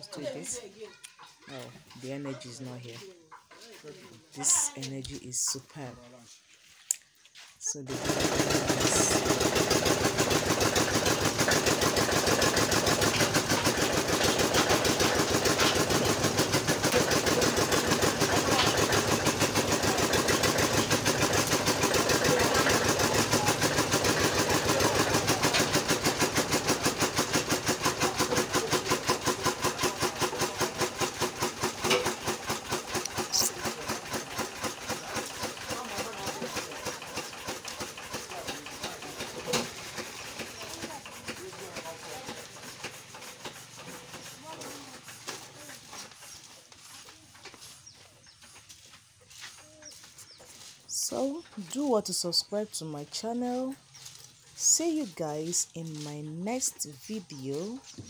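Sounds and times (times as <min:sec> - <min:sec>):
stationary engine running: 0:07.9 - 0:45.9.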